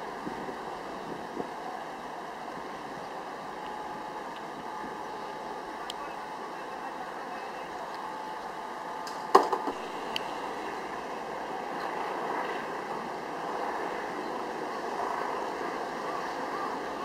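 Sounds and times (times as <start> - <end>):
wind on microphone: 0.0 - 5.5
light click: 5.8 - 6.0
sharp knock: 9.1 - 9.8.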